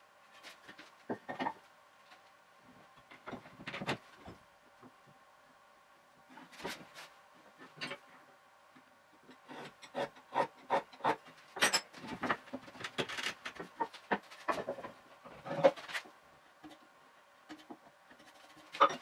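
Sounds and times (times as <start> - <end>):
wooden knocks taps and scrapes: 12.0 - 16.8.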